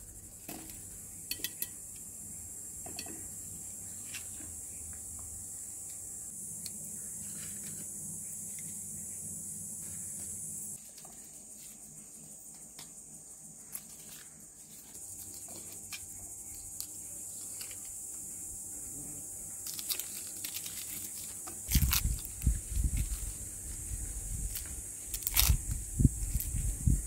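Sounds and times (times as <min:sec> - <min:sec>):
high-pitched insect chorus: 0:00.0 - 0:27.0
onion skin crinkling: 0:19.6 - 0:23.3, 0:24.5 - 0:26.6.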